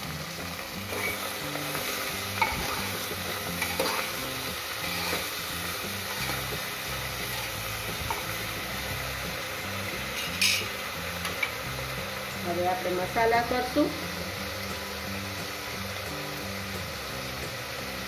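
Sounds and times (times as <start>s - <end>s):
vegetables sizzling in hot oil: 0.0s - 18.0s
spoon scraping a pot: 0.9s - 4.2s, 4.8s - 5.4s.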